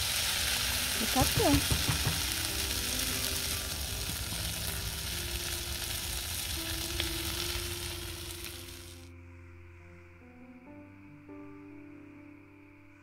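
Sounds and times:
bacon sizzling in frying pan: 0.0 - 9.1.

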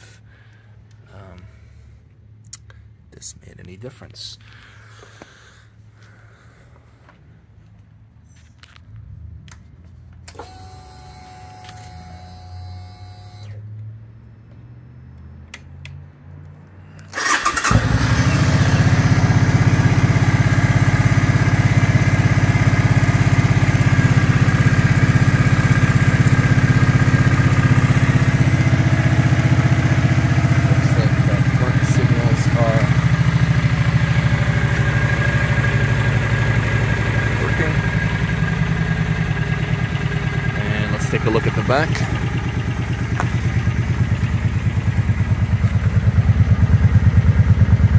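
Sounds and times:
motorcycle engine starting and idling: 9.0 - 13.6, 16.9 - 47.9.

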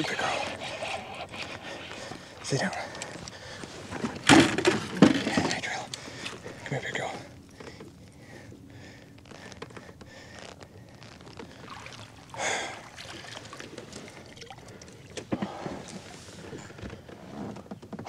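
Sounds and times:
fishing gear clattering on hull: 0.0 - 10.2
small water splashes: 11.4 - 15.3.

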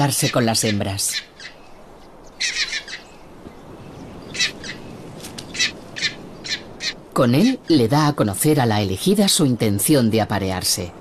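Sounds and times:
rock hyrax singing high calls: 0.0 - 3.3, 4.0 - 7.8
faint steady hiss: 0.0 - 11.0.

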